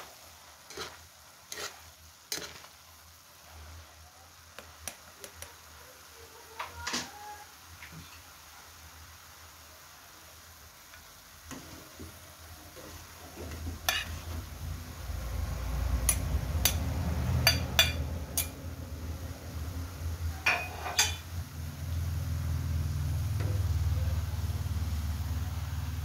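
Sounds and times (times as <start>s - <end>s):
utensils scraping a wok: 0.5s - 2.8s, 11.5s - 14.6s, 16.0s - 18.6s, 20.4s - 21.3s.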